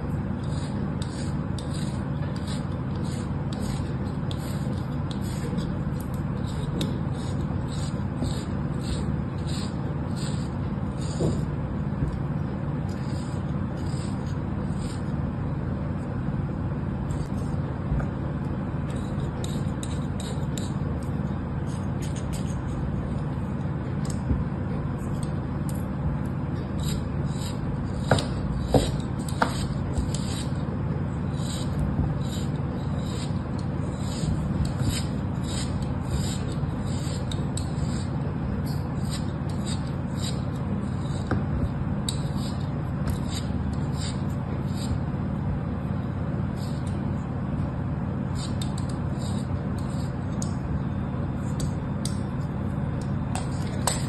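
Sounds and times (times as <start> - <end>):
steady low hum: 0.0 - 54.0
knife scraping kinetic sand: 0.3 - 11.6, 12.8 - 15.2, 18.8 - 23.0, 26.7 - 30.6, 31.2 - 45.0, 46.5 - 47.0, 48.3 - 50.6.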